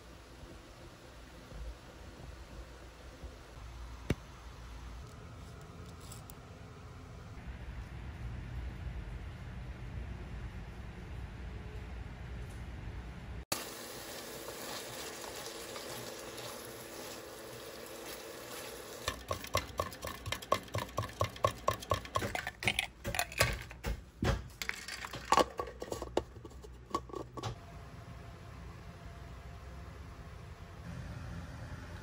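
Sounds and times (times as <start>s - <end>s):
food sizzling in a frying pan: 13.5s - 19.1s
utensil scraping pan: 24.7s - 27.6s.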